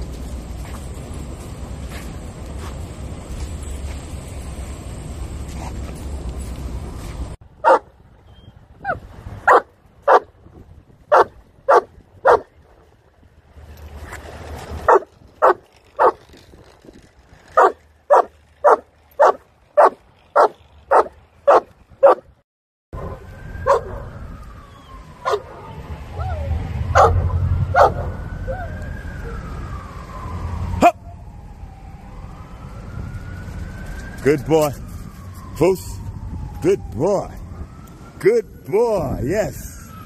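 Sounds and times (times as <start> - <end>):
street traffic noise: 0.0 - 22.4, 23.0 - 40.0
small dog barking: 7.6 - 7.9, 11.1 - 12.5, 17.6 - 22.2, 27.8 - 28.1.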